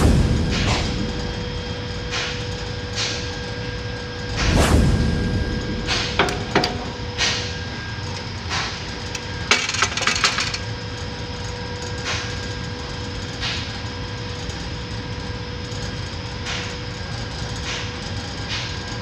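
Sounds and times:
steady machine hum: 0:00.0 - 0:19.0
lathe lever clunking into position: 0:06.2 - 0:07.0
metallic knocks and clicks: 0:06.2 - 0:07.0, 0:09.1 - 0:10.6.

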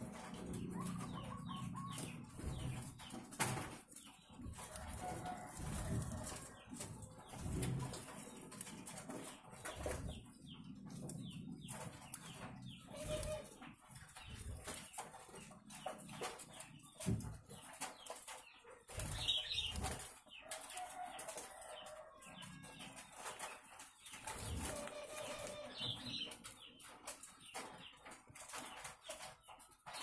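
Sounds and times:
birds chirping: 0:00.0 - 0:30.0
doves cooing: 0:12.8 - 0:13.6.

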